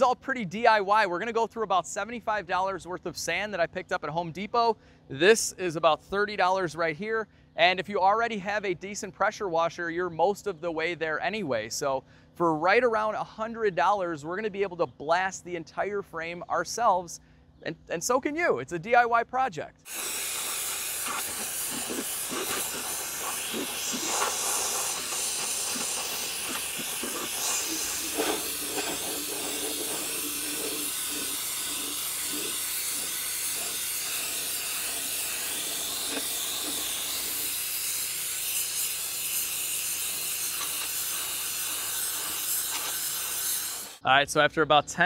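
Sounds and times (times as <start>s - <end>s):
pressure washer spray hissing: 19.9s - 44.0s.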